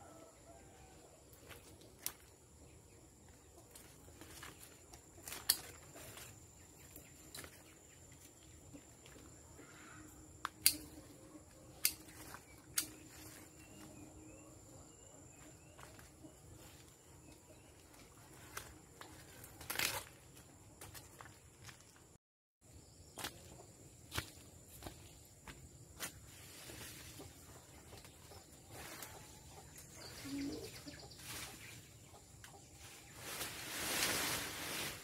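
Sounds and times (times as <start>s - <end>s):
pruning shears snipping: 10.4s - 11.0s, 11.8s - 13.0s.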